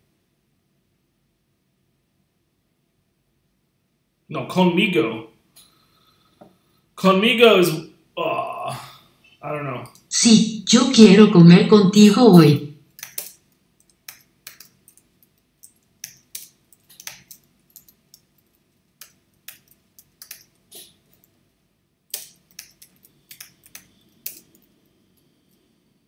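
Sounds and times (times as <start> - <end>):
computer keyboard typing: 12.9 - 21.4, 22.1 - 24.9.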